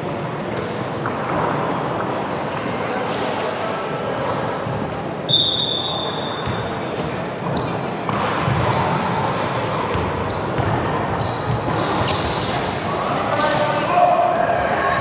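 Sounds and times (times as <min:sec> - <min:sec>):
sneakers squeaking: 0:01.0 - 0:01.8, 0:03.6 - 0:15.0
basketball bouncing: 0:07.4 - 0:12.4
players' voices: 0:08.0 - 0:15.0.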